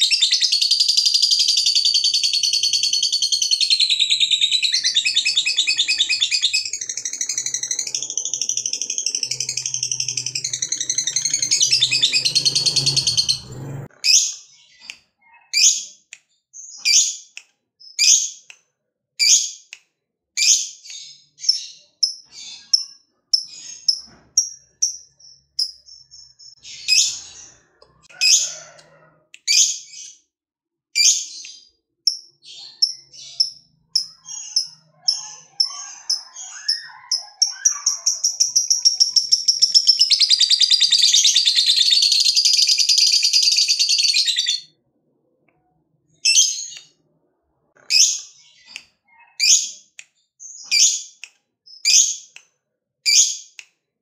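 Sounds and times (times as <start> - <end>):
bird chattering trill: 0.0 - 13.4, 32.8 - 44.6
shrill bird chirps: 0.0 - 16.0, 20.4 - 30.3, 31.0 - 44.8, 47.8 - 52.4.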